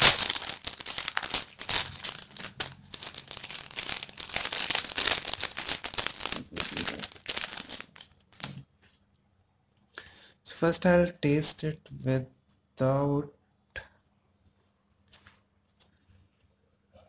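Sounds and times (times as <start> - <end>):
plastic wrapper crinkling: 0.0 - 8.7, 15.1 - 16.0.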